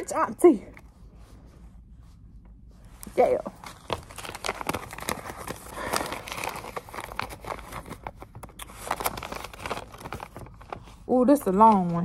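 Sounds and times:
paper rustling and crinkling: 3.0 - 12.0.

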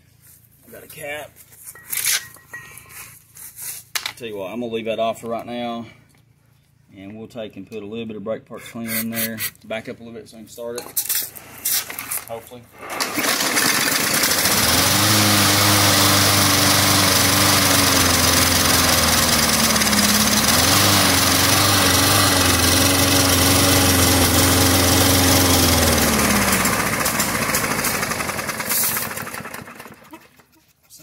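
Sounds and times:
lawn mower engine running: 12.8 - 30.4.

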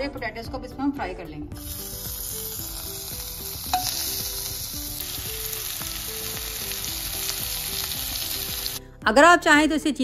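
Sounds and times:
potatoes sizzling in a pan: 1.6 - 8.8.

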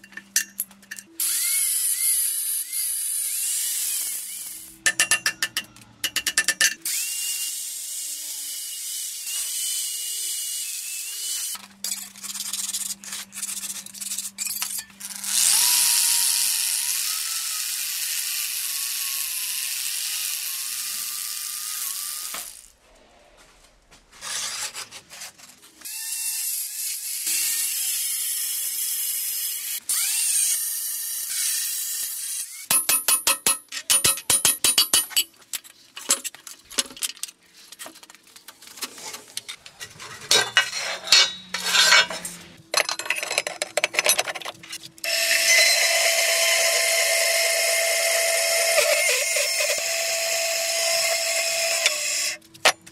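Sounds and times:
power tool whine: 15.1 - 22.5, 45.0 - 52.4.

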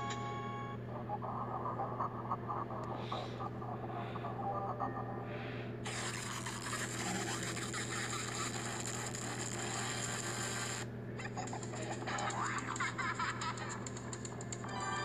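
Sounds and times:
steady low hum: 0.0 - 15.0
rapid crackling: 5.8 - 10.8
harsh distorted hiss: 5.8 - 10.9.

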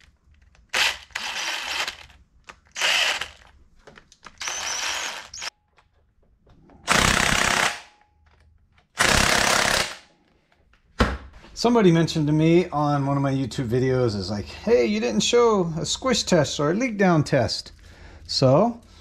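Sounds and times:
power tool bursts: 0.7 - 2.1, 2.8 - 3.4, 4.4 - 5.5.

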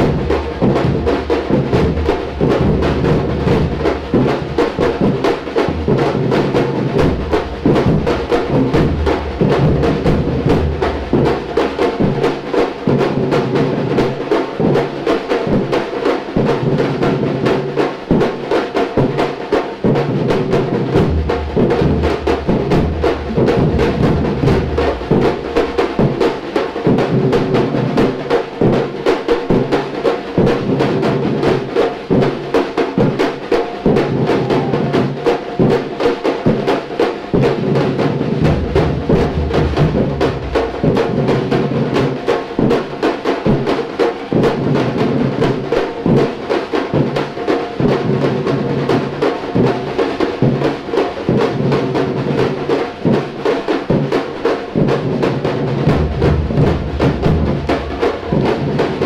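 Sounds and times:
deep bass drums: 0.0 - 3.9, 7.0 - 11.7, 20.9 - 26.2, 38.4 - 41.2, 55.9 - 58.8
snare and repique drums: 0.0 - 59.0.

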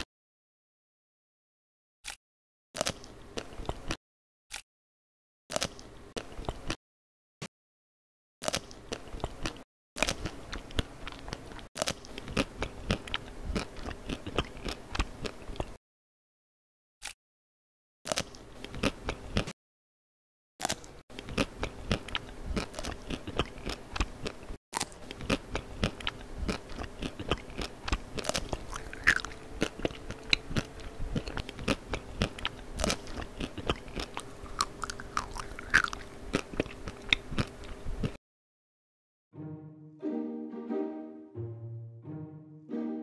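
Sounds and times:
crisp food being chewed: 2.8 - 4.0, 5.5 - 6.8, 8.4 - 15.8, 18.1 - 19.5, 20.6 - 38.2.

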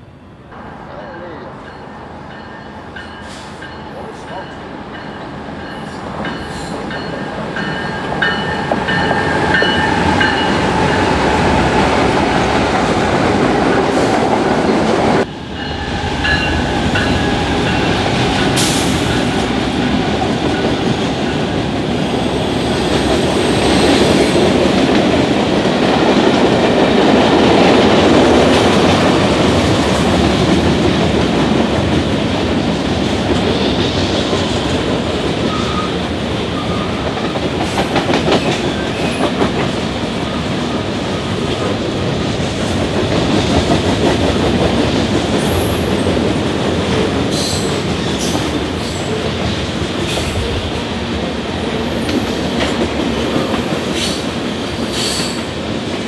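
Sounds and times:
train cars clattering on rails: 13.2 - 56.0.

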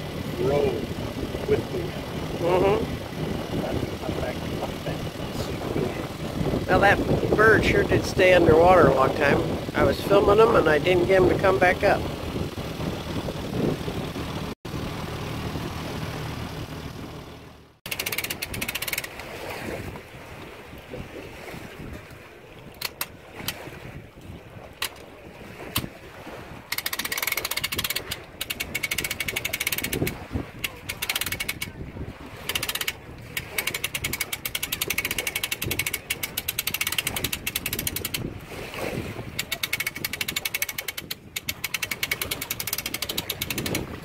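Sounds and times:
hand winch ratchet clicking: 17.9 - 19.3, 22.8 - 23.6, 24.8 - 25.1, 25.7 - 25.9, 26.7 - 31.8, 32.4 - 38.3, 39.4 - 43.9.

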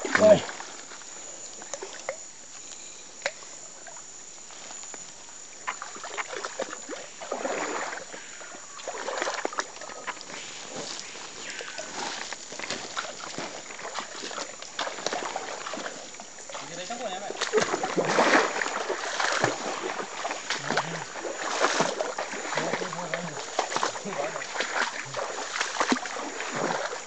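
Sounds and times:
palm fruit bunch rustling: 9.9 - 25.5.

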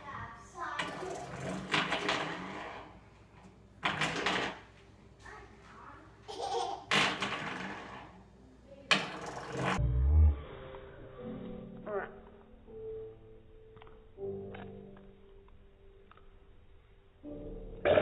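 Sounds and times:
toddler laughing: 6.3 - 7.0.

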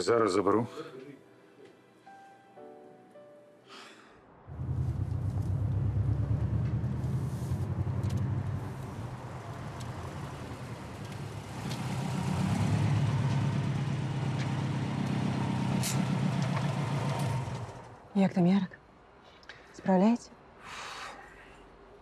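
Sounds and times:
car engine running: 4.5 - 18.0.

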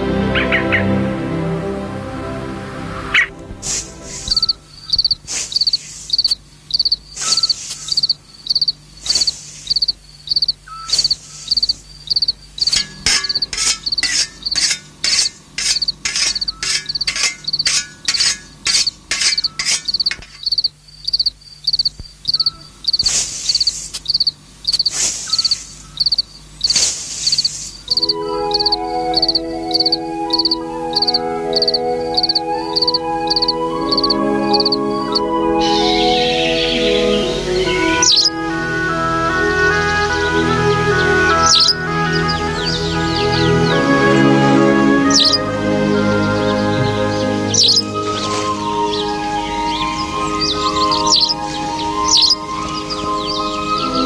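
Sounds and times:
crickets chirping: 3.6 - 38.3.

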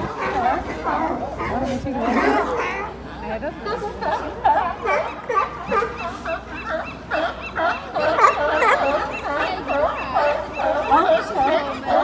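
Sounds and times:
sea lions barking: 0.0 - 12.0.

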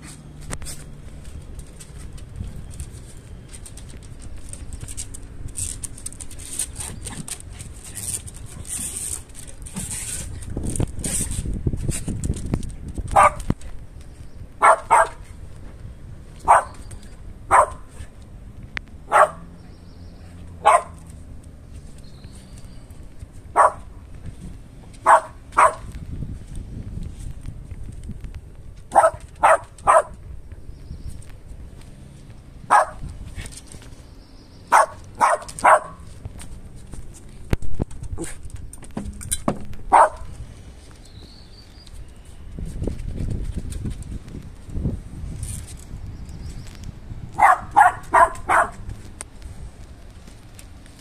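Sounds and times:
dog barking: 13.2 - 13.4, 14.6 - 15.2, 16.4 - 16.8, 17.5 - 17.9, 19.1 - 19.5, 20.6 - 21.0, 23.6 - 23.9, 25.0 - 25.9, 28.9 - 30.2, 32.7 - 33.0, 34.7 - 36.0, 39.9 - 40.3, 47.4 - 48.8.

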